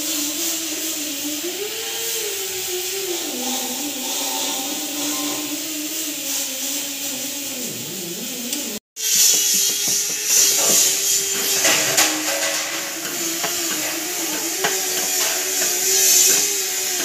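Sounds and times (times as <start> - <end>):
steady hum and hiss: 0.0 - 17.0
metal tool scraping on metal: 3.0 - 5.8, 9.1 - 17.0.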